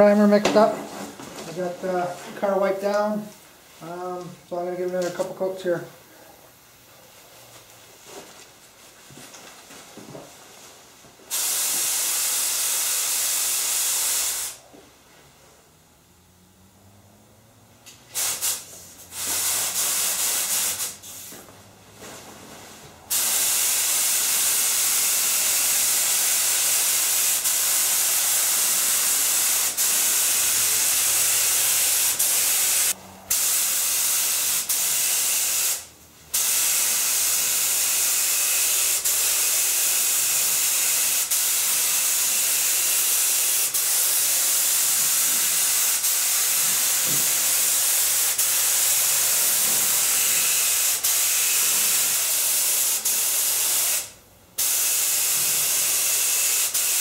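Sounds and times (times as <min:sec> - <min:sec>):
spray gun hissing: 0:11.3 - 0:14.6, 0:18.2 - 0:21.3, 0:23.1 - 0:57.0.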